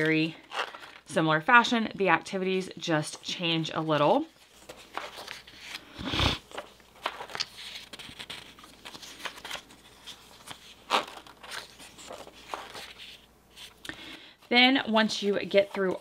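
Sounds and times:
paper pages rustling and flapping: 0.0 - 1.1, 3.2 - 13.8.

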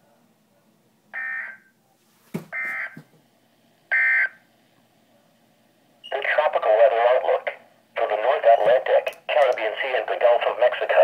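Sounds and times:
soft knocks: 2.3 - 3.2.

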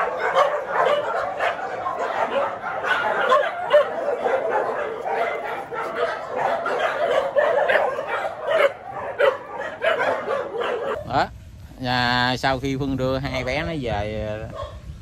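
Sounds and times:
dogs barking and yelping: 0.0 - 11.1, 14.4 - 14.9.

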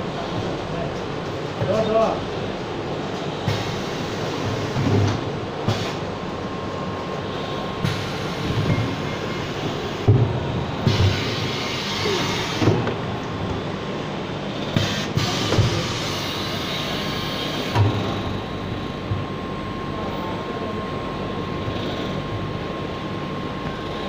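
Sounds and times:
faint machine whine: 0.0 - 24.0
packing machine hiss: 3.4 - 6.0, 7.8 - 10.1, 10.8 - 12.8, 14.7 - 18.1.

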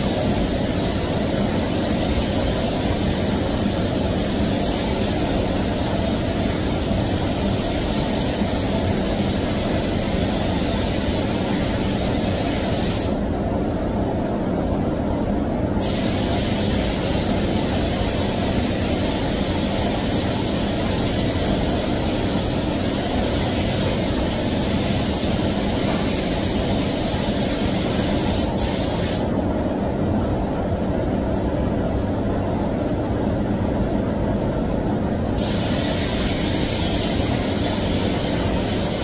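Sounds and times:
ventilation fans rumbling: 0.0 - 39.0
paint spray gun hissing: 15.8 - 29.3, 35.4 - 39.0.

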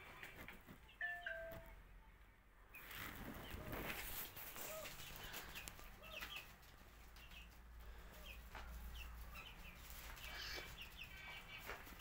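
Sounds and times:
chickens clucking: 2.8 - 12.0.

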